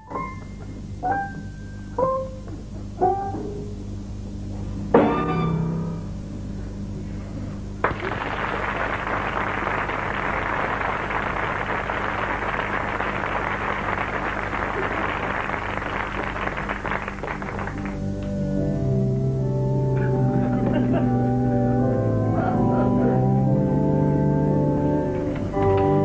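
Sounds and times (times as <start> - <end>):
low electrical hum: 0.0 - 26.0
audience applause: 7.8 - 18.0.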